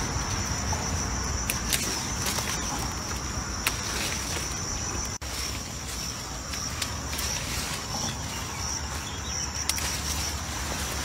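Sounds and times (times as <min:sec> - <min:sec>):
insects chirring: 0:00.0 - 0:11.0
vines rustling and clicking: 0:00.0 - 0:11.0.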